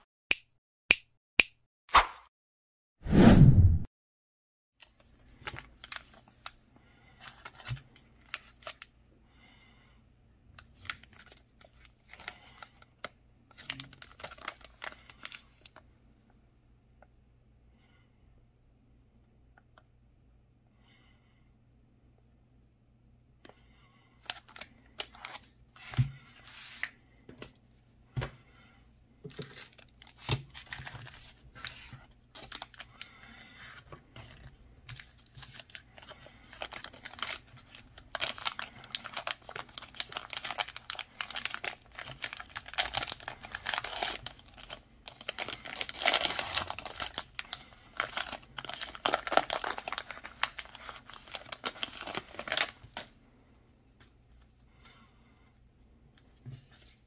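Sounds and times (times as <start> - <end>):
foil wrapper crinkling and tearing: 13.5 - 15.8, 29.3 - 33.1, 34.9 - 53.1.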